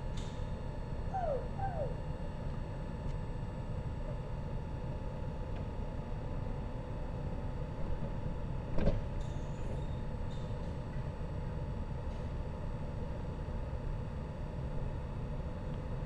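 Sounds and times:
train electrical ventilation hum: 0.0 - 16.0
faint high-pitched sounds: 1.1 - 2.2
sliding train door closing: 8.7 - 9.4.

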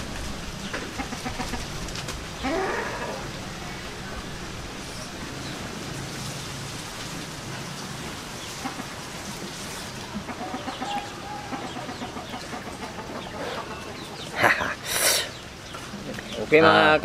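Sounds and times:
chickens clucking: 0.0 - 5.7, 7.5 - 17.0
steady hiss: 0.0 - 17.0
drawn-out hen call: 0.8 - 4.0, 8.5 - 15.1.

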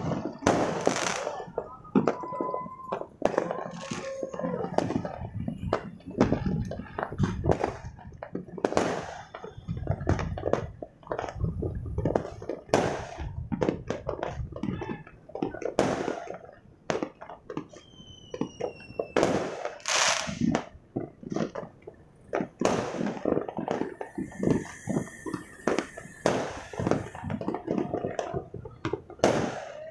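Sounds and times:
firework whistle: 0.0 - 7.9, 8.7 - 10.7, 17.6 - 20.6, 22.7 - 29.9
fireworks bangs and pops: 0.0 - 29.9.

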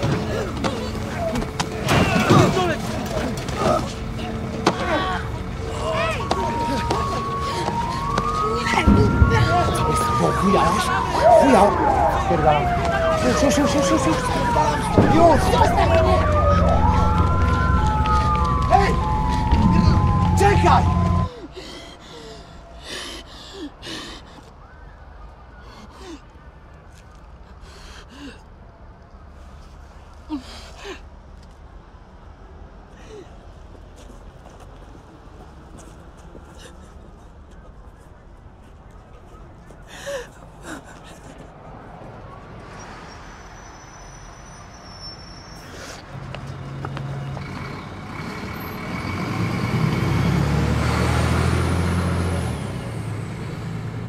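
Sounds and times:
bus engine hum: 0.0 - 24.8, 44.9 - 54.0.

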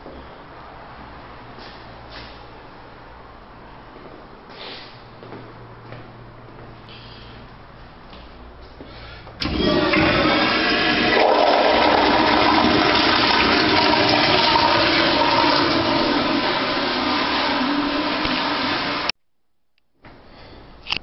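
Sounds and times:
toilet flushing: 9.4 - 19.1.

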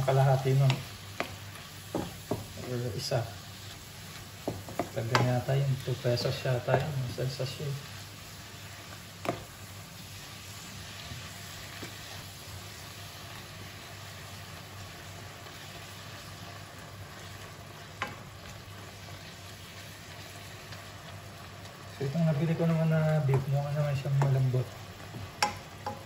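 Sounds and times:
wooden spatula stirring: 0.0 - 7.4, 15.3 - 26.0
meat sizzling in a wok: 0.0 - 26.0
spatula knocking on pan: 1.2 - 2.7, 4.4 - 5.4, 25.1 - 26.0.

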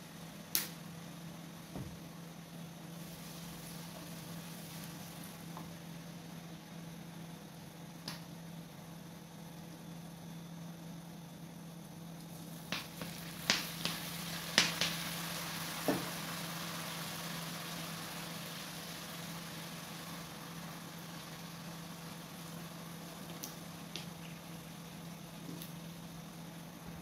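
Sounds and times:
steady low hum: 0.0 - 27.0
sauce sizzling in a wok: 2.5 - 7.9, 12.2 - 27.0.

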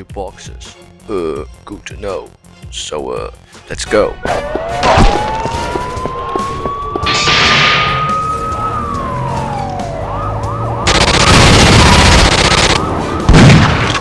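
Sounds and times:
police siren wailing: 4.1 - 13.3.

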